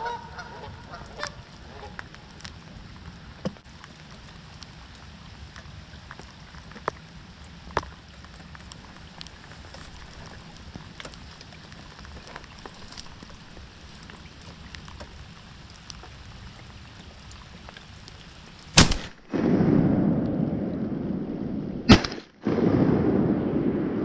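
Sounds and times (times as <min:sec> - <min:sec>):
rain pattering: 0:00.0 - 0:24.0
shotgun shot: 0:18.8 - 0:20.7, 0:21.9 - 0:24.0.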